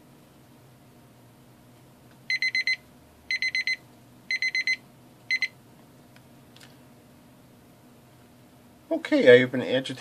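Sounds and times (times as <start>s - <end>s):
kitchen timer beeping: 2.3s - 5.6s.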